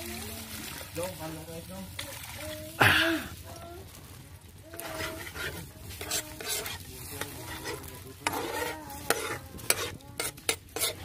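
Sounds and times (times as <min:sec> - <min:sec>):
oil sizzling in a wok: 0:03.2 - 0:11.0
metal ladle scraping a wok: 0:04.7 - 0:11.0.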